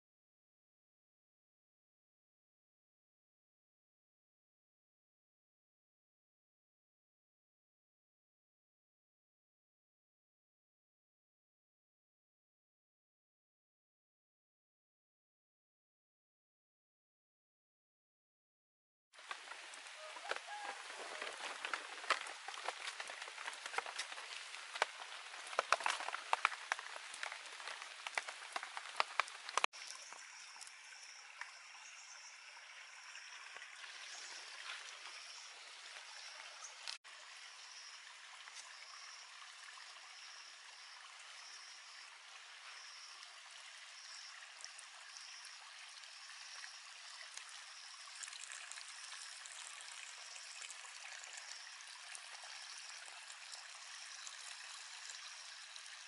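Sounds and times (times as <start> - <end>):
sharp clicks and splats: 19.2 - 30.7
water trickling: 19.2 - 56.0.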